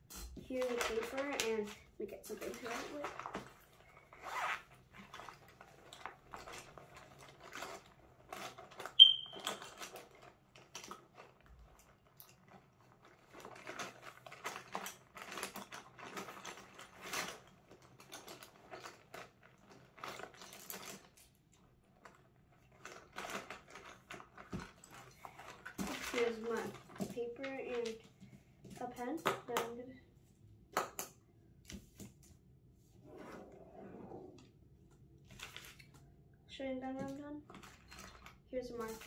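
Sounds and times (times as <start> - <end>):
pens rattling in a pouch: 0.1 - 29.6, 35.2 - 36.1, 37.1 - 39.0
fabric pouch rustling: 3.0 - 8.8
short sharp high squeak: 9.0 - 9.4.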